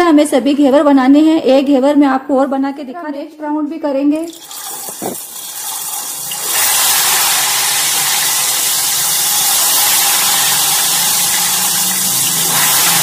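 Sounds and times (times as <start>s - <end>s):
batter sizzling in hot oil: 4.2s - 13.0s.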